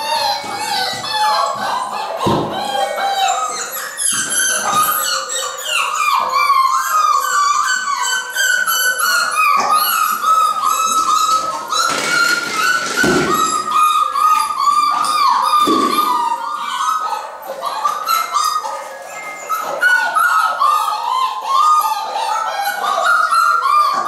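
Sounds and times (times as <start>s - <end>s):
puppies yelping and whining: 0.0s - 24.0s.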